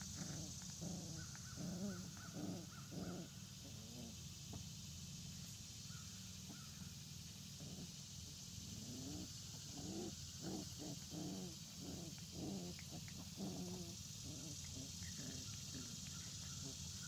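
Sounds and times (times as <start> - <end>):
puppies growling in play: 0.0 - 4.2, 7.5 - 17.0.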